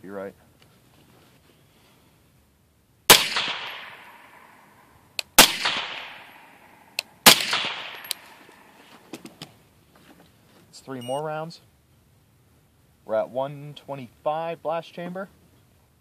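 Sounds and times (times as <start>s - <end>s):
suppressed rifle shots echoing: 3.1s - 8.8s
rifle handling clicks: 7.9s - 8.6s.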